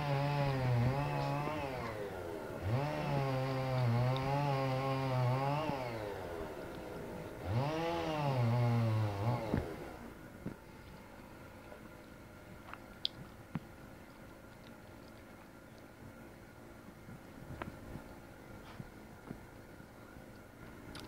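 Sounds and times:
small engine revving: 0:00.0 - 0:10.2.

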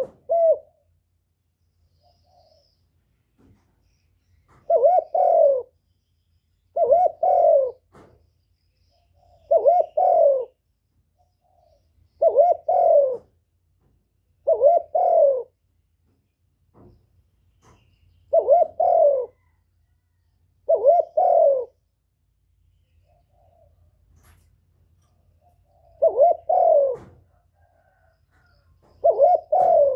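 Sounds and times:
dove cooing: 0:00.0 - 0:01.0, 0:04.5 - 0:05.8, 0:06.7 - 0:08.1, 0:08.9 - 0:10.6, 0:11.4 - 0:13.4, 0:14.4 - 0:15.6, 0:17.7 - 0:21.9, 0:23.0 - 0:24.0, 0:25.3 - 0:29.9.

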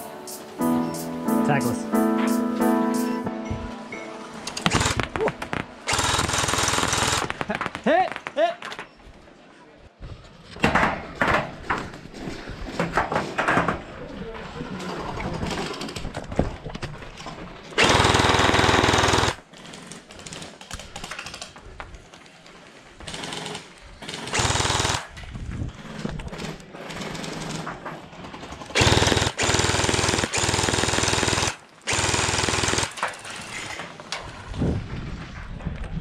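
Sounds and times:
gel blaster firing full auto: 0:04.6 - 0:07.4.

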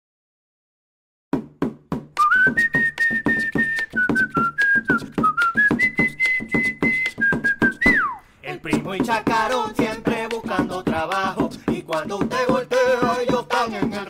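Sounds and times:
quick percussion beat: 0:01.4 - 0:14.0
whistled melody: 0:02.2 - 0:08.2.

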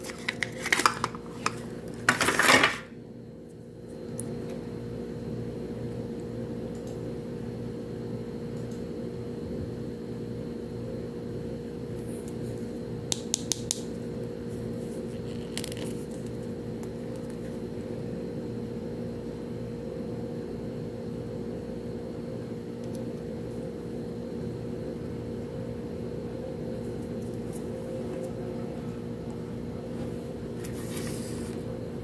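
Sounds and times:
plastic scraping: 0:00.0 - 0:02.8
low background hum: 0:00.0 - 0:32.0.

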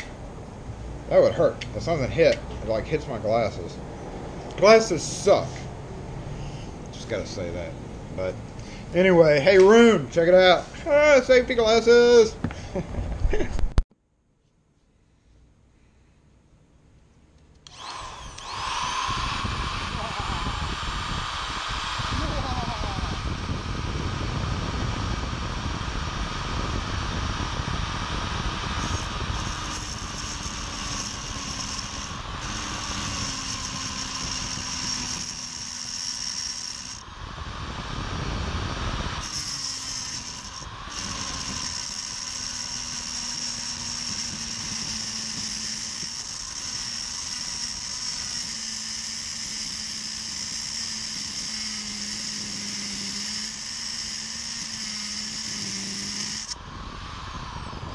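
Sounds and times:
angle grinder cutting steel: 0:17.6 - 0:23.1, 0:28.7 - 0:37.1, 0:39.1 - 0:56.6.

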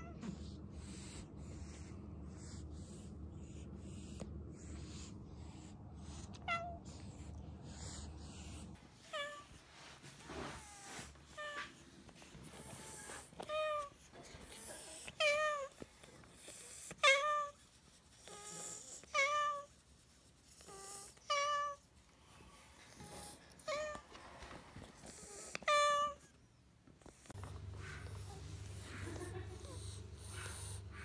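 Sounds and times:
cat meowing: 0:06.4 - 0:06.9.

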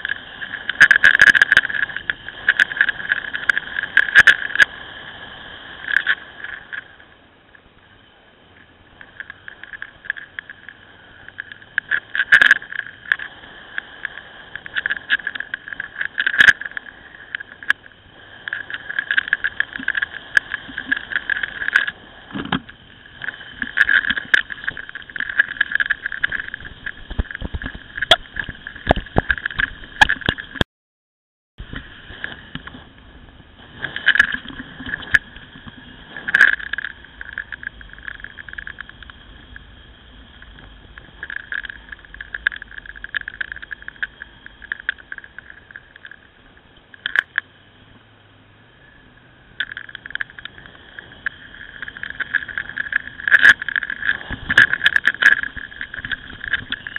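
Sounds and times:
motorcycle engine drone: 0:31.6 - 0:56.9.

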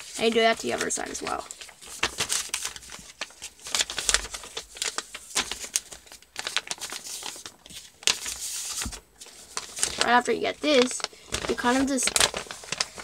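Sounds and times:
paper being folded and creased: 0:00.0 - 0:13.0.

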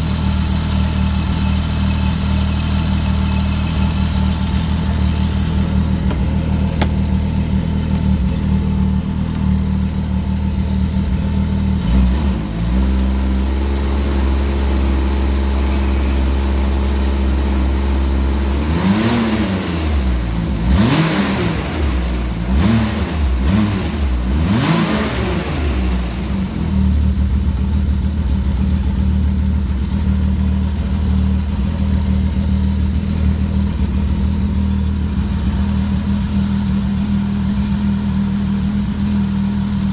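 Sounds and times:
snowmobile engine idling: 0:00.0 - 0:20.7, 0:24.9 - 0:39.9
snowmobile engine revving: 0:18.5 - 0:26.6.

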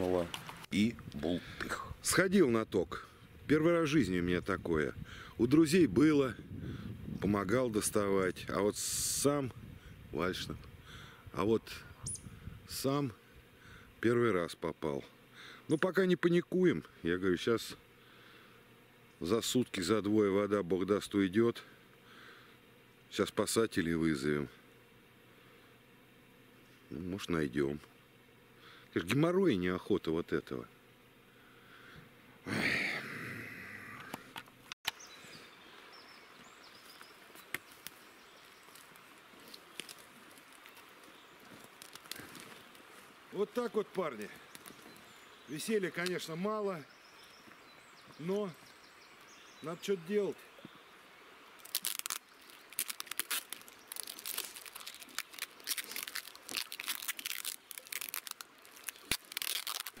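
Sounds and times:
rustling and crackling handling noise: 0:00.0 - 0:01.8, 0:36.8 - 0:45.2, 0:51.6 - 1:00.0
faint steady hiss: 0:00.0 - 1:00.0.

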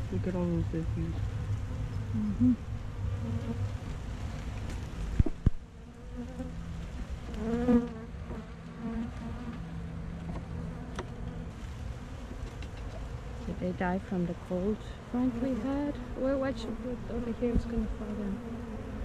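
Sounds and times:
honey bees buzzing: 0:00.0 - 0:19.0
bee buzzing close by: 0:01.4 - 0:06.6, 0:07.2 - 0:09.6, 0:15.0 - 0:19.0.

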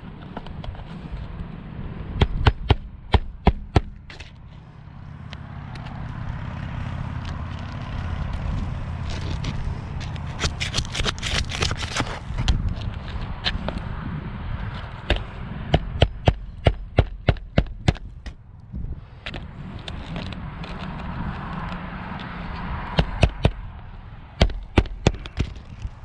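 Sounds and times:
low steady rumble: 0:00.0 - 0:26.0
hammer striking nails: 0:02.2 - 0:04.0, 0:24.4 - 0:25.7.

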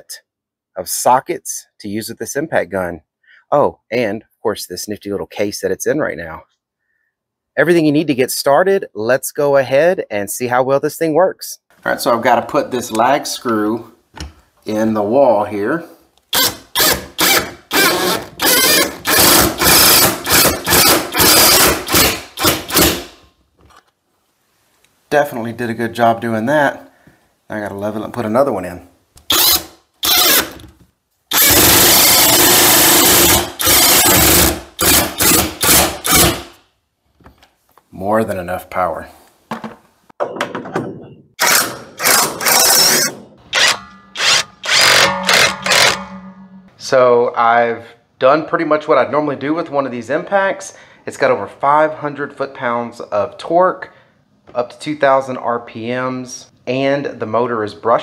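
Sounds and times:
impact wrench hammering: 0:16.4 - 0:23.2, 0:41.4 - 0:46.8.

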